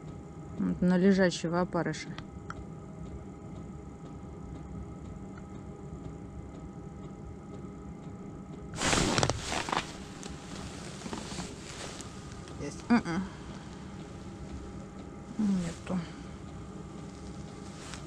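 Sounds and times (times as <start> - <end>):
quiet steady hum: 0.0 - 18.0
winter clothing rustling: 8.8 - 14.8, 17.0 - 18.0.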